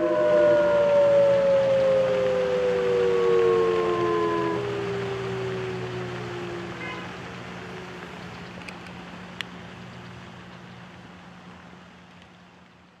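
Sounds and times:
electronic siren wail: 0:00.0 - 0:08.0
low hum: 0:00.0 - 0:08.8
outdoor hiss: 0:00.0 - 0:13.0
faint clicks: 0:08.0 - 0:10.8.

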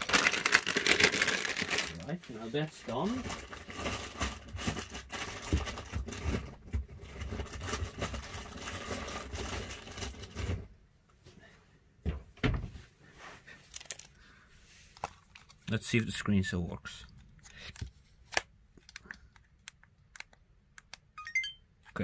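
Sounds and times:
small items rustling and clicking: 0:00.0 - 0:10.5, 0:13.6 - 0:14.2, 0:14.9 - 0:16.1, 0:17.2 - 0:20.4.

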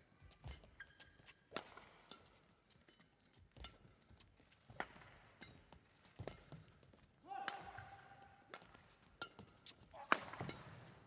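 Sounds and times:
shoe squeaks: 0:00.3 - 0:01.4
racket hitting shuttlecock: 0:01.5 - 0:02.4, 0:07.3 - 0:11.0.

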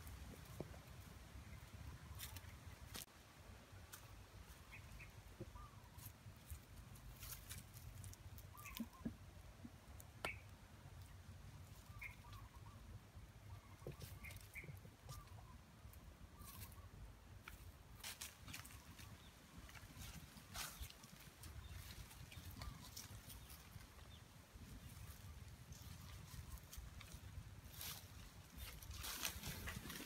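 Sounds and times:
faint bird calls: 0:04.5 - 0:06.2, 0:08.0 - 0:17.1, 0:18.5 - 0:30.0.

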